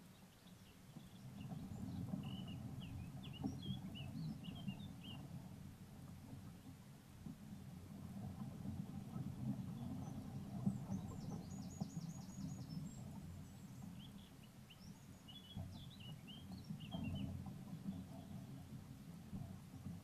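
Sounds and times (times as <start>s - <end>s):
bird chirps: 0.0s - 5.2s, 9.8s - 18.4s
songbird trill: 0.0s - 5.4s, 9.2s - 18.7s.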